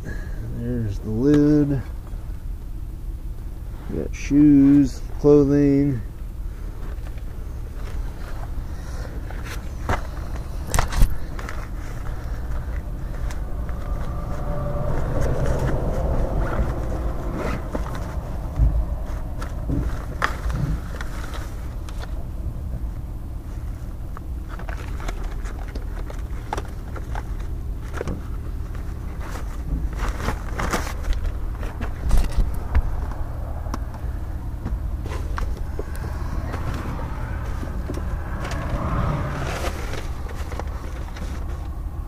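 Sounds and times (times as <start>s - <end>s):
low rumble: 6.2s - 42.0s
clothing rustling: 6.5s - 22.2s.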